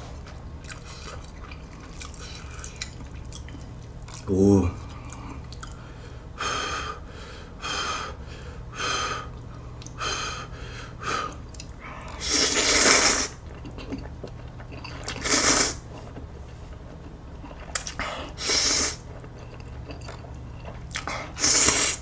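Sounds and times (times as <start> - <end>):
person slurping noodles: 12.2 - 13.4, 15.1 - 15.8, 18.4 - 19.0, 21.3 - 22.0.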